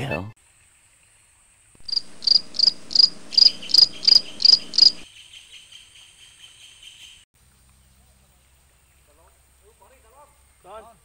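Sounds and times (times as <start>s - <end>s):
cricket chirps: 1.8s - 5.3s.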